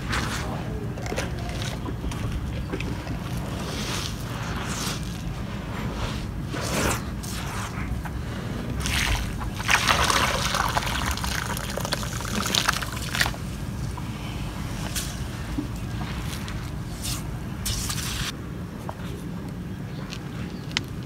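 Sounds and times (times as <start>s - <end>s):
water pouring onto dirt: 8.8s - 13.5s.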